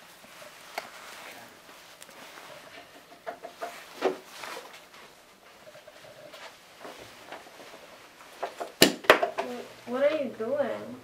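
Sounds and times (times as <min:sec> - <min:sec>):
soft rustles: 0:00.0 - 0:08.8.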